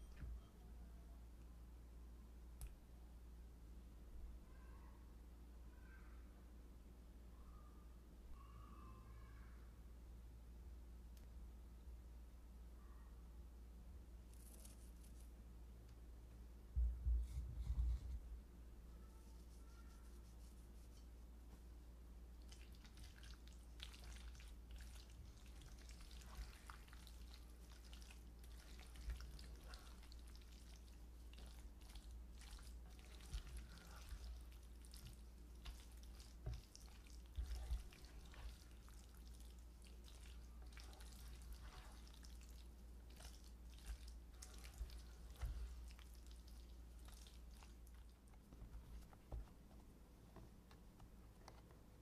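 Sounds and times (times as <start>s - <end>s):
spatula stirring wet filling: 22.3s - 49.1s.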